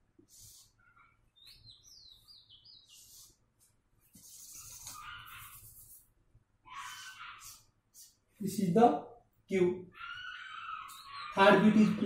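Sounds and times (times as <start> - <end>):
marker scratching on board: 4.0 - 6.1, 6.7 - 8.2.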